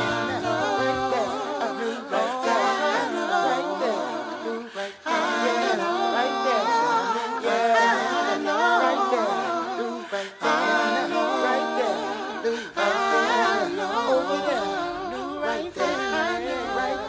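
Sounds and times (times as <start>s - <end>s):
voices singing in harmony: 0.0s - 17.0s.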